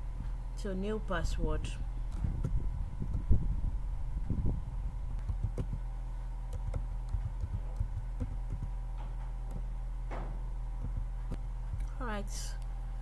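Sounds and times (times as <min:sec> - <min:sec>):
low electrical hum: 0:00.0 - 0:13.0
keyboard keys clicking: 0:05.2 - 0:05.8, 0:06.5 - 0:08.8.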